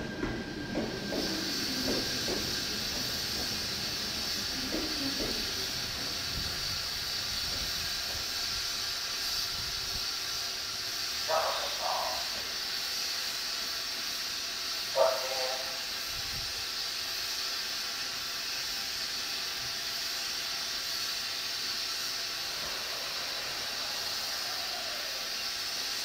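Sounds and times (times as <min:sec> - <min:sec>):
electric train hissing: 0:00.0 - 0:26.0.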